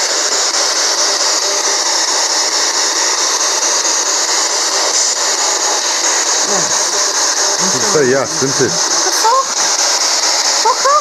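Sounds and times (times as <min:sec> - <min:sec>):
radio static hiss: 0:03.7 - 0:10.8.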